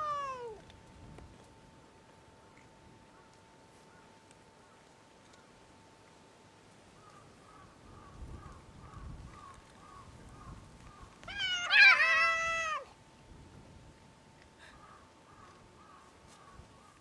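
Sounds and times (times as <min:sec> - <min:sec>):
cat meowing: 0:00.0 - 0:00.6, 0:11.3 - 0:12.9.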